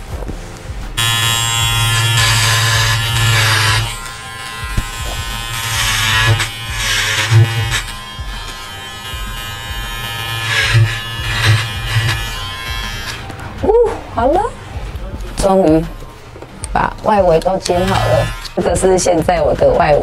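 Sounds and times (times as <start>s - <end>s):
clipper blades cutting hair: 1.0s - 13.4s, 16.6s - 20.0s
electric hair clipper buzzing: 1.0s - 13.5s, 17.3s - 19.1s.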